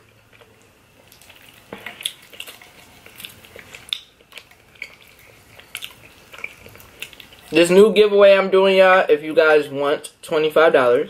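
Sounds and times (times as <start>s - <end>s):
wet chewing mouth smacks: 1.1s - 7.6s.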